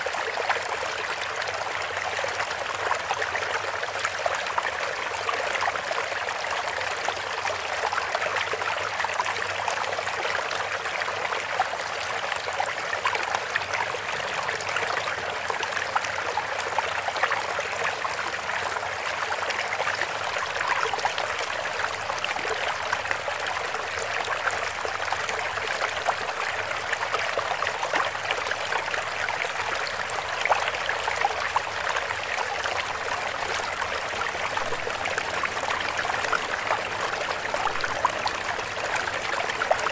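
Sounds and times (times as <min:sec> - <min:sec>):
running water: 0:18.9 - 0:39.9.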